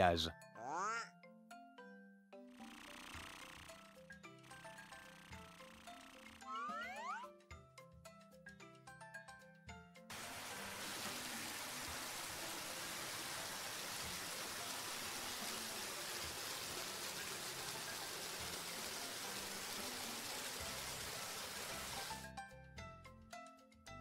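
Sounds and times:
hose water spraying: 10.1s - 22.2s.

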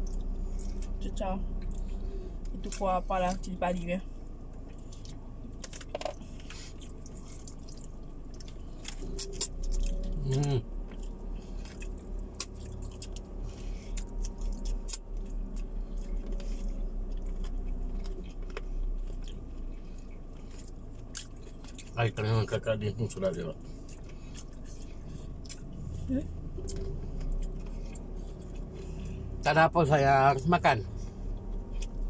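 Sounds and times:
people chewing food: 0.0s - 3.5s, 4.2s - 32.0s
person humming: 10.1s - 10.6s.

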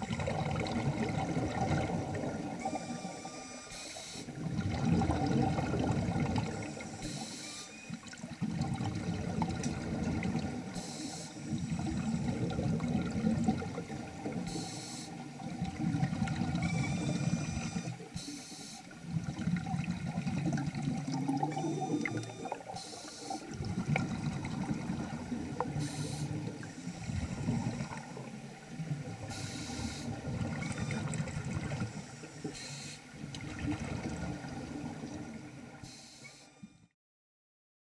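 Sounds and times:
underwater exhaled air bubbling: 0.0s - 3.4s, 4.3s - 7.3s, 7.9s - 18.2s, 18.8s - 35.8s
regulator inhalation hiss: 10.8s - 11.6s, 14.5s - 15.2s, 18.2s - 18.9s, 22.8s - 23.5s, 29.3s - 30.2s.

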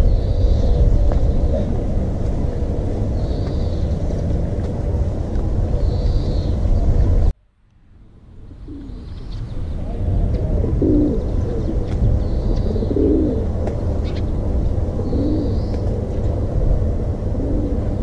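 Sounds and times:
dove cooing: 0.0s - 4.7s, 8.5s - 18.0s
loud rumble: 0.0s - 18.0s
low outdoor rumble: 0.0s - 18.0s.

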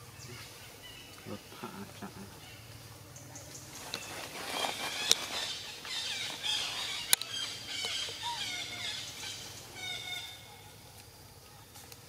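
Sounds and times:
monkeys squealing and squeaking: 4.4s - 10.5s.

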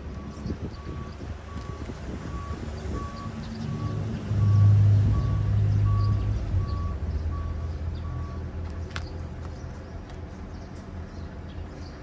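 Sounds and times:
reversing alarm beeping: 0.1s - 8.4s.

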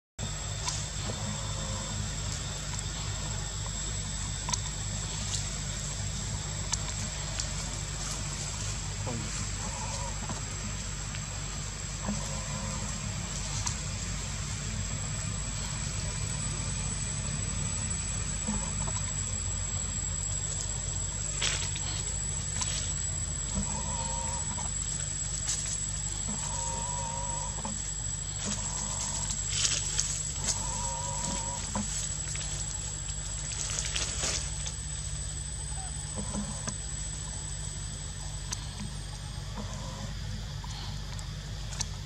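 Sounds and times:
low hum: 0.2s - 42.0s
short animal calls: 9.0s - 10.4s, 12.0s - 13.8s, 26.2s - 27.8s.

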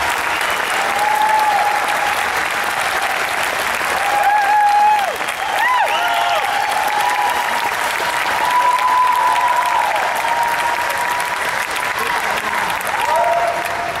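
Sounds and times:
audience applauding and cheering: 0.0s - 14.0s.

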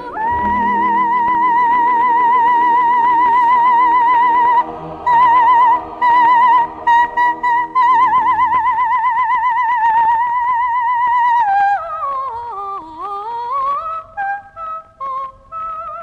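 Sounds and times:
soprano singing operatic vocalise: 0.0s - 16.0s.

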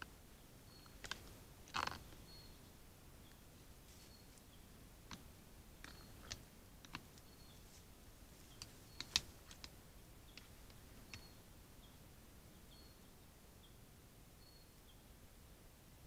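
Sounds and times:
faint high chirps: 2.2s - 3.4s, 10.2s - 15.1s
deer stepping through grass: 3.8s - 4.5s.

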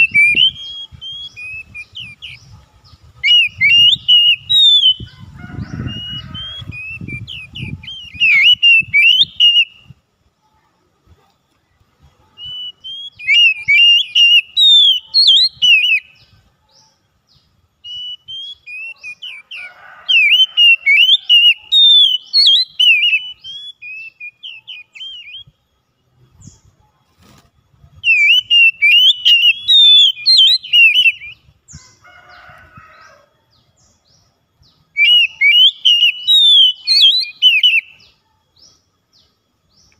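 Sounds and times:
bird singing whistled phrases: 0.0s - 2.6s, 3.2s - 5.1s, 5.8s - 9.9s, 12.4s - 16.3s, 17.8s - 25.6s, 28.0s - 31.4s, 34.9s - 38.2s.

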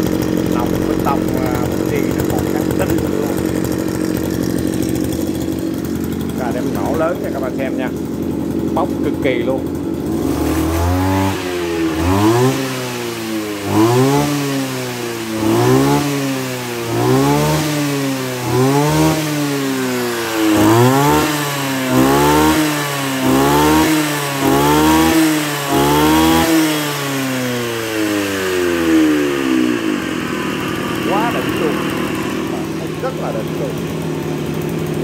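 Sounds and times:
brush cutter engine revving: 0.0s - 35.0s.

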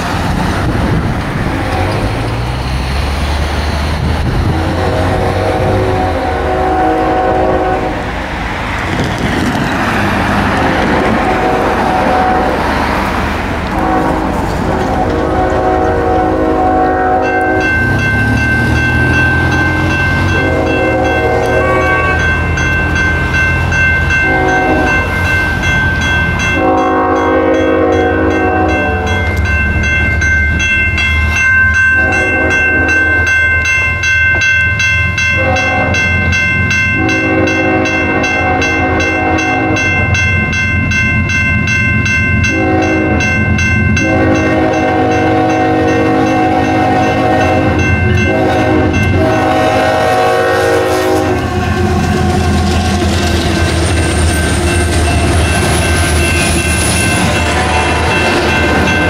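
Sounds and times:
crossing bell ringing: 0.0s - 59.0s
diesel locomotive rumble: 0.0s - 59.0s
locomotive horn blasts: 4.3s - 8.1s, 11.2s - 12.7s, 13.7s - 22.7s, 23.8s - 25.4s, 26.0s - 29.3s, 31.8s - 33.4s, 35.2s - 36.3s, 36.9s - 40.1s, 42.4s - 43.4s, 44.0s - 53.2s, 57.0s - 59.0s.

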